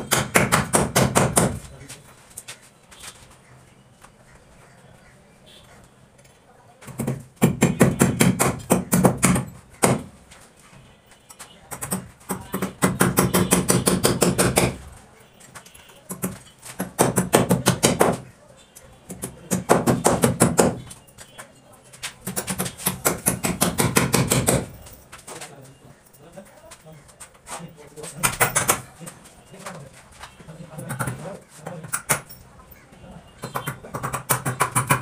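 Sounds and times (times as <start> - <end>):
rapid sharp knocking: 0.0 - 1.6, 6.9 - 10.1, 11.7 - 14.8, 16.1 - 18.2, 19.1 - 20.8, 22.2 - 24.8, 33.4 - 35.0.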